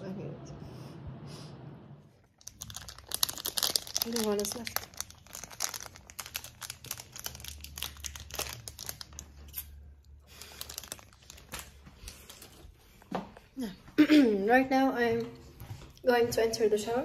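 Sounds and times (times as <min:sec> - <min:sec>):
plastic wrapper crinkling: 0:02.2 - 0:12.7.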